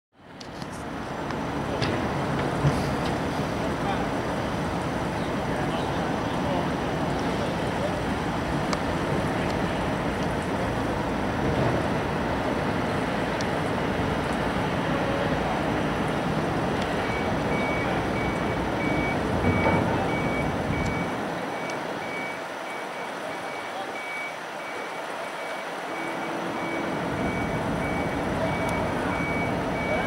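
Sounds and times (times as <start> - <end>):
heavy construction machinery: 0.2 - 30.0
reversing alarm beeping: 16.9 - 30.0.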